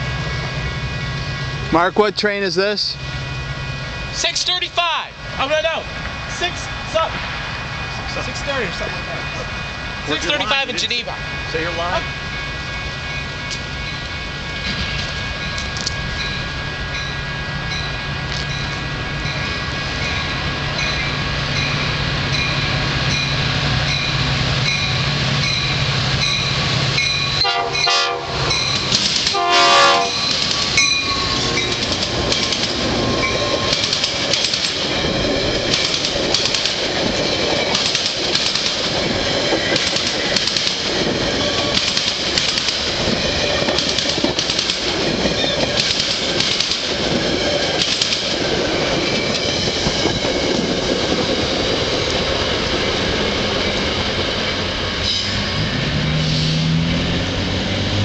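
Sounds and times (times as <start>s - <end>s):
train passing: 0.0s - 58.0s
train air horn: 27.4s - 28.6s, 29.3s - 30.3s
wheels clacking over rail joints: 28.5s - 56.5s.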